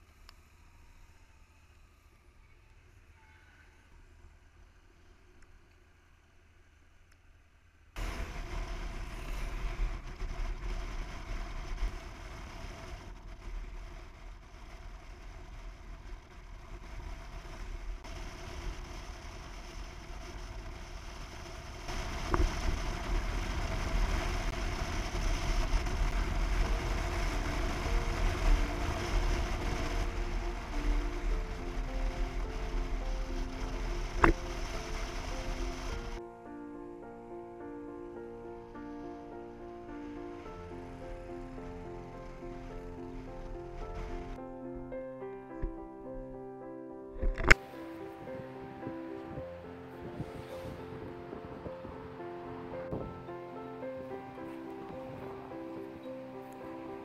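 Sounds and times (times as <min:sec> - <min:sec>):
wind rushing over microphone: 0:08.0 - 0:36.2, 0:47.2 - 0:57.0.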